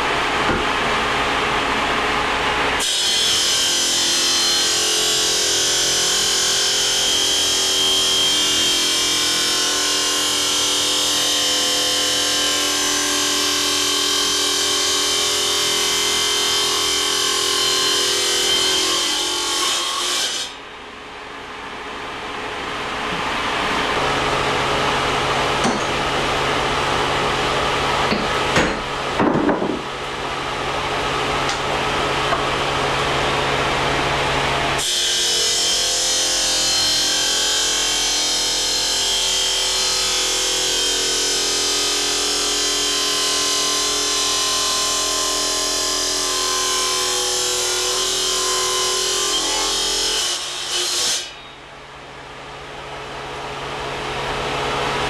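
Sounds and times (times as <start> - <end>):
machine running hum: 0.0 - 2.8, 20.6 - 34.8
knocks: 28.1 - 29.9.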